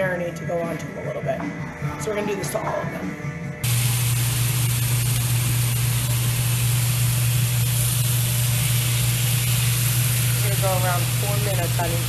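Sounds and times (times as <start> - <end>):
meat sizzling in oil: 3.6 - 12.0.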